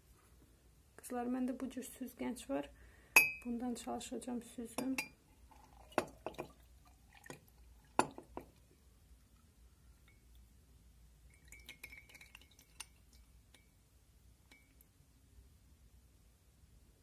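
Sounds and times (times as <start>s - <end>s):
tea strainer clinking on glass mug: 4.8s - 6.5s, 11.3s - 13.0s
liquid dripping: 4.8s - 10.6s, 11.2s - 13.8s.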